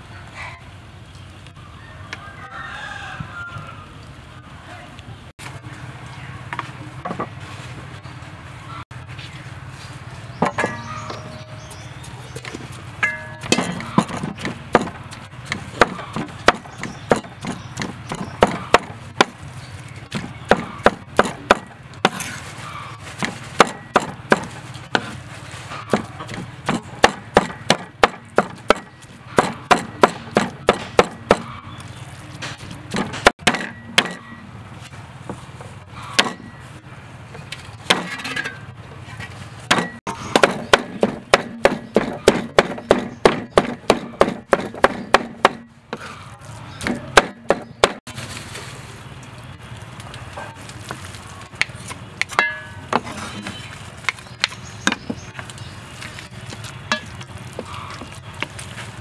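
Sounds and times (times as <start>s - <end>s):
cleaver chopping on wooden board: 13.1s - 19.4s, 20.1s - 22.4s, 23.2s - 25.2s, 25.9s - 31.6s, 32.9s - 34.3s, 36.2s - 36.5s, 37.9s - 38.2s, 39.7s - 46.1s, 46.8s - 48.0s.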